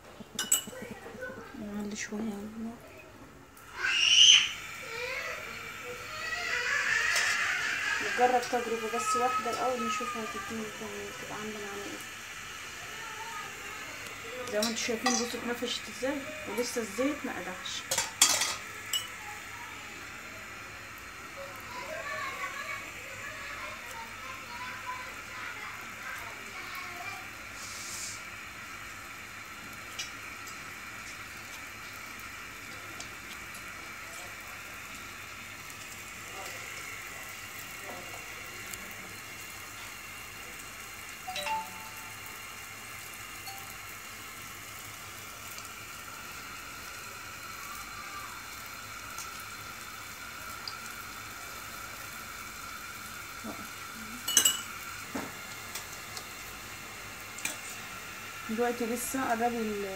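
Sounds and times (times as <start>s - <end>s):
dough sizzling in hot oil: 0.0s - 59.9s
metal utensils clinking on pot: 0.4s - 0.8s, 14.5s - 15.4s, 17.9s - 19.1s, 54.2s - 54.7s.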